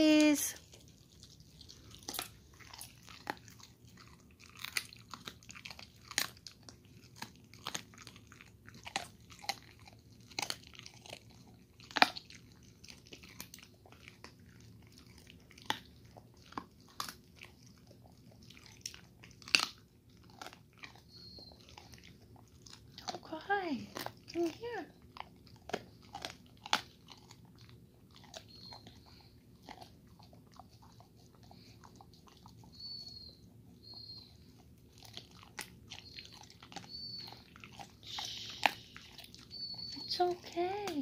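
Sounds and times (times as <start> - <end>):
dog crunching and chewing: 0.0 - 41.0.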